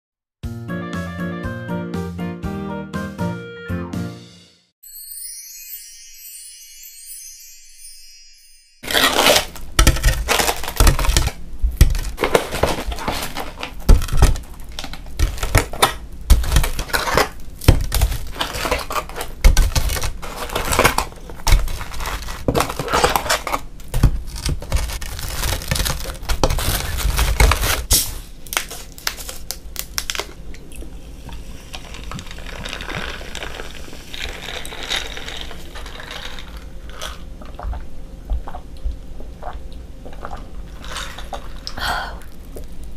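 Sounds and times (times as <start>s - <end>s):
paper packaging crinkling: 8.8s - 30.4s, 31.7s - 37.2s.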